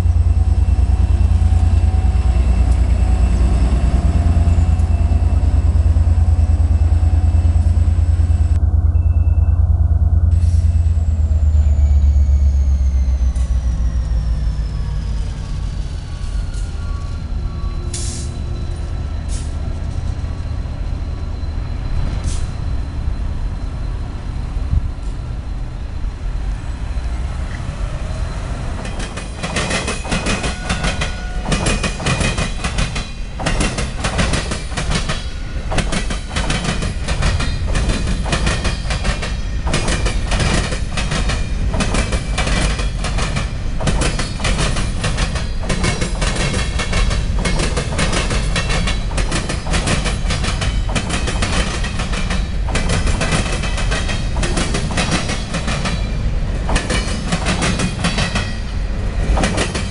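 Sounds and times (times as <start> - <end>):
train low rumble: 0.0 - 59.9
train wheels clacking over rail joints: 28.8 - 59.9.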